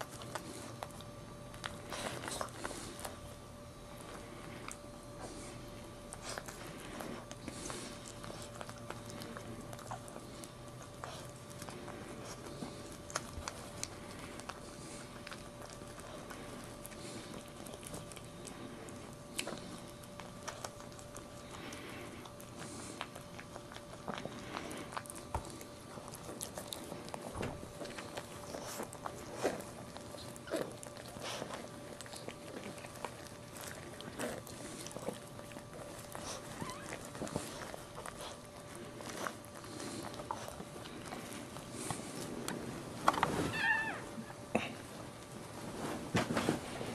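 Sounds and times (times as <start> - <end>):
faint steady hum: 0.0 - 46.9.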